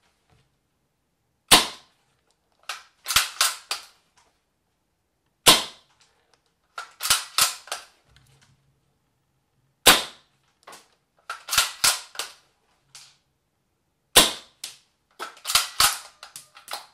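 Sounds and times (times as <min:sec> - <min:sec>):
airsoft rifle shot crack: 0:01.5 - 0:01.9, 0:05.5 - 0:05.9, 0:09.8 - 0:10.3, 0:14.2 - 0:14.6.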